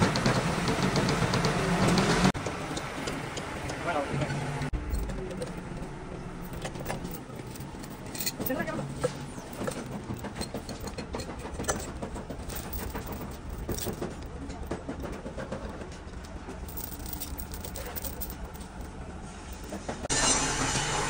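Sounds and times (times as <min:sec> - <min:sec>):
vehicle engine rumble: 0:00.0 - 0:20.8
loud hissing noise: 0:20.1 - 0:21.0.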